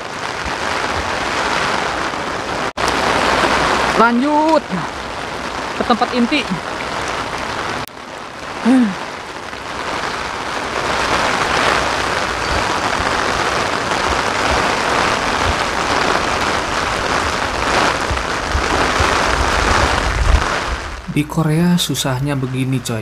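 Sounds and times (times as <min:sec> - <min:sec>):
heavy rain on pavement: 0:00.0 - 0:23.0
rain drumming on umbrella: 0:00.0 - 0:23.0
wind buffeting microphone: 0:09.8 - 0:21.1.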